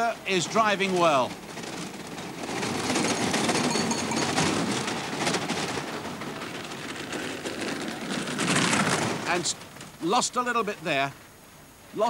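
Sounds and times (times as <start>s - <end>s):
rattling clatter: 0.4s - 10.0s.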